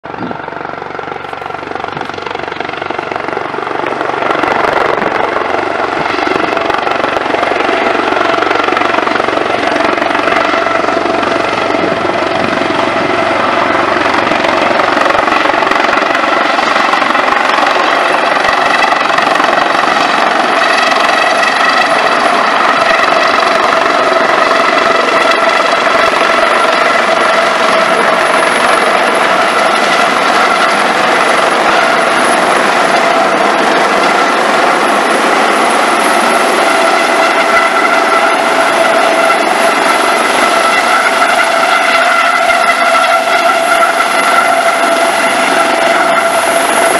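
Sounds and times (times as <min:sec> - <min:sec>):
helicopter rotor noise: 0:00.0 - 0:46.9
helicopter whine: 0:00.0 - 0:46.9.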